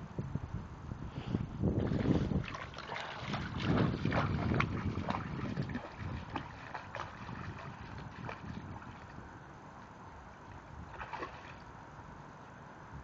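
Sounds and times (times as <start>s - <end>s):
wind rumble on microphone: 0.0s - 9.6s, 10.2s - 13.0s
dog splashing through water: 1.8s - 9.2s, 10.9s - 11.7s.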